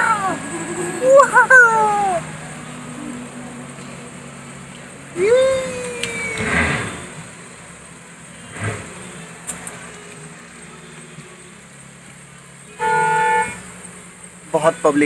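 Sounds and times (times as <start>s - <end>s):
roadside traffic hum: 0.0s - 15.0s
vehicle horn blast: 8.4s - 9.5s, 12.6s - 13.9s.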